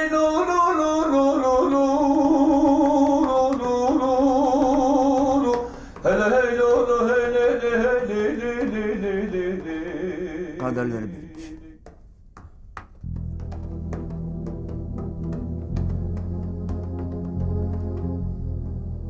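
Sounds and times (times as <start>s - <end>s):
man singing lament: 0.0s - 11.8s.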